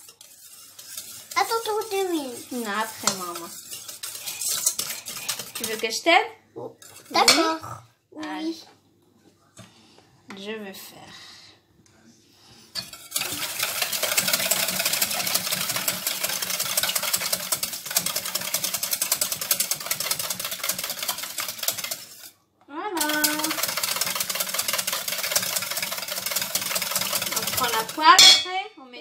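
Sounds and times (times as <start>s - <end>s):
whisk clinking in metal bowl: 0.0s - 6.0s, 12.8s - 22.4s, 23.0s - 28.6s.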